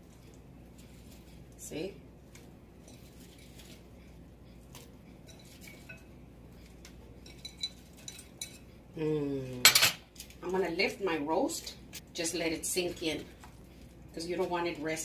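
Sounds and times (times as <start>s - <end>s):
utensil clinking on cast-iron pot: 6.8s - 8.7s.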